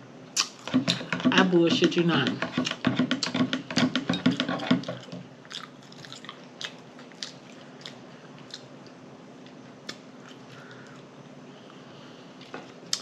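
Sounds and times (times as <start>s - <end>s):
wet lip smacks: 0.4s - 0.6s
close-up chewing: 4.6s - 11.1s.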